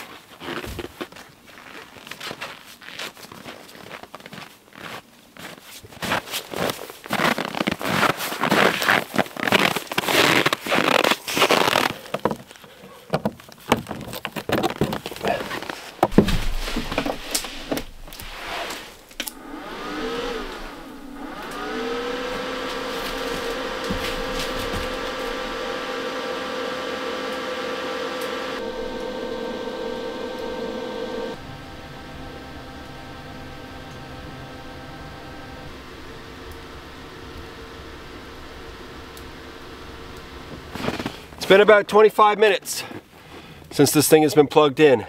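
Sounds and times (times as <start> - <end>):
boots crunching in snow: 0.0 - 12.3, 21.6 - 26.1, 40.6 - 41.5
cooling fan hum: 16.2 - 41.5.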